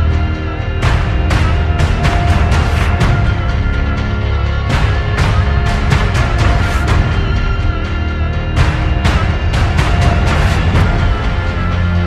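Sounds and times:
music with heavy bass and beat: 0.0 - 12.0.

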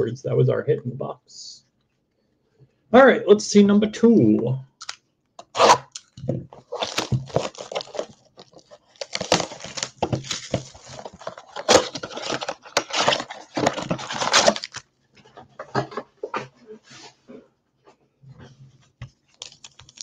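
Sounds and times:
plastic wrap crinkling and tearing: 4.8 - 14.9, 19.3 - 20.0.

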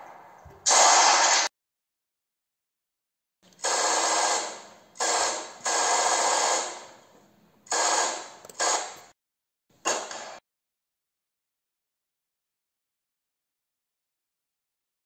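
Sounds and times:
gunfire bursts: 0.0 - 1.5, 3.6 - 7.0, 7.7 - 9.1.

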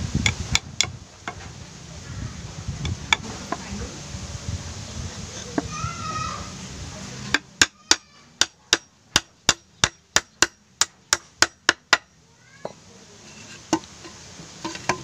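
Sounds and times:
hammer striking nails into wood: 7.3 - 12.1.

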